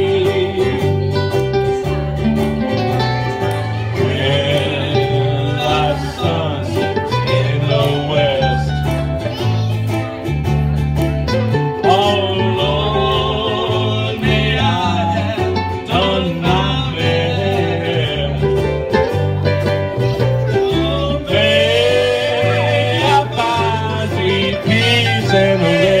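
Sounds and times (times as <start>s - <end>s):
man singing into microphone: 0.0s - 1.1s, 4.0s - 8.9s, 11.8s - 18.7s, 20.5s - 26.0s
bass line: 0.0s - 26.0s
ukuleles strumming: 0.0s - 26.0s.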